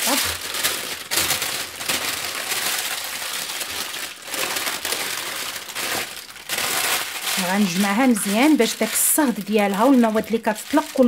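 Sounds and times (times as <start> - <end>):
baking paper crinkling: 0.0 - 11.0.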